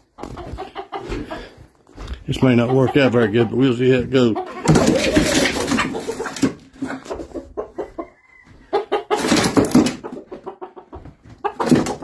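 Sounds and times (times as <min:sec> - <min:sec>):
chickens clucking: 0:00.0 - 0:12.0
chicken drawn-out call: 0:04.4 - 0:09.4.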